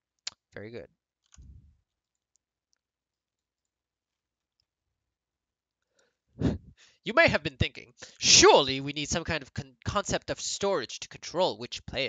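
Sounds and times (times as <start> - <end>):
man's voice: 7.1 - 12.0.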